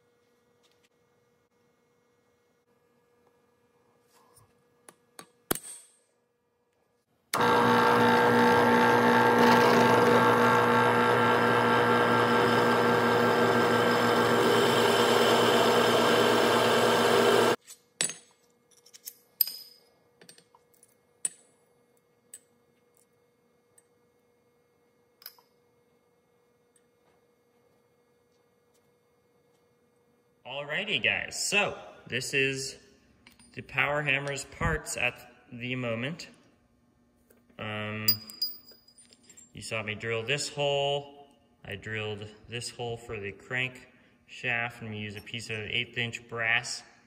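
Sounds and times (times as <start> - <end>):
drill press cutting steel: 7.4 - 17.6
metallic clinks of steel pieces: 38.1 - 39.6.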